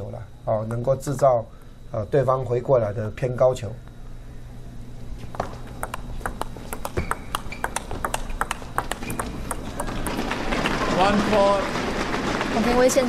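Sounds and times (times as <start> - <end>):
ball bouncing on table: 5.3 - 10.9
table tennis ball hitting bats: 5.3 - 12.0.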